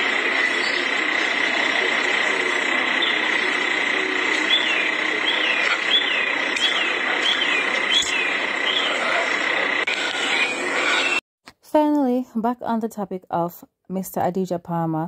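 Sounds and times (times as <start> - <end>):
constant high whine: 0.0 - 11.2
bird chirping: 4.4 - 9.1.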